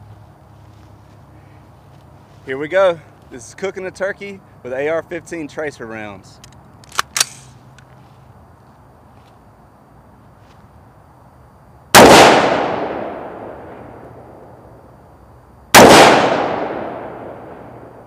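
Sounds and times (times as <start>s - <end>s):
rifle shots with echo: 12.0s - 14.0s, 15.7s - 18.0s.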